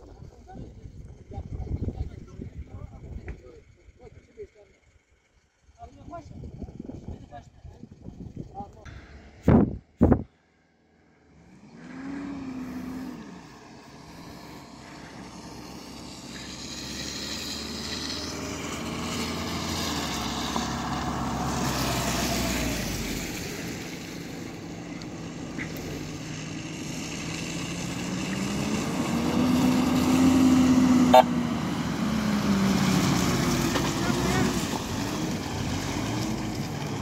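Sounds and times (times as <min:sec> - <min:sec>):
traffic driving past: 0:10.4 - 0:37.0.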